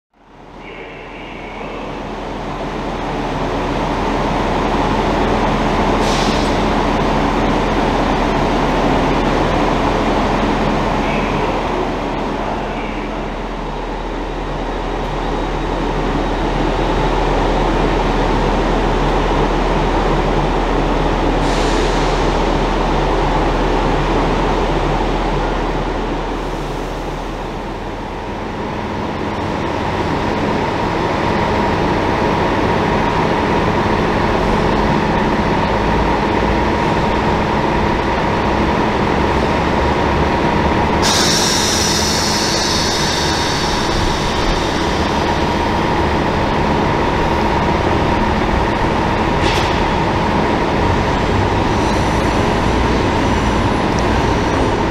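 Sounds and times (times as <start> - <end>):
electric train droning: 0.2 - 54.9
short hisses: 41.0 - 45.2.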